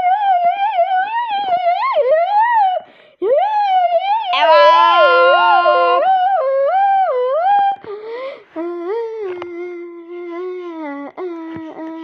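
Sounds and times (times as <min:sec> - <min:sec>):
wavering voice-like humming: 0:04.3 - 0:06.2.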